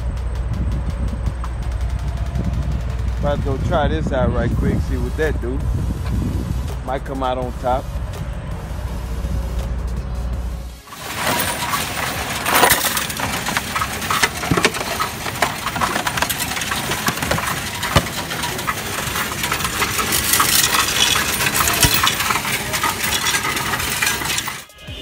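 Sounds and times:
coins clattering against metal: 10.9 - 24.7.

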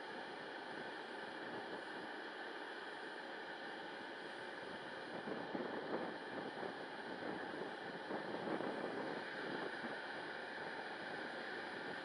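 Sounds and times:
wind blowing across microphone: 5.1 - 12.0.

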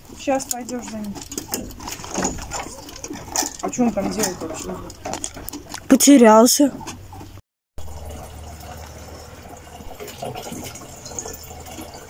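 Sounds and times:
hose water filling plastic container: 7.8 - 12.0.

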